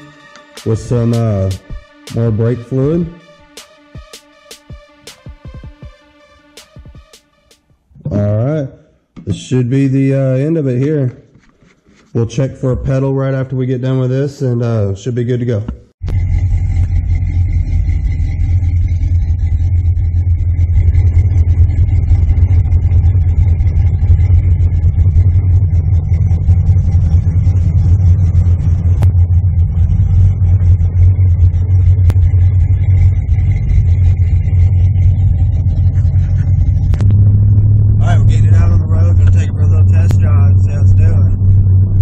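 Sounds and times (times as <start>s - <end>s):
car engine rumbling: 0.0s - 6.6s, 16.0s - 42.0s.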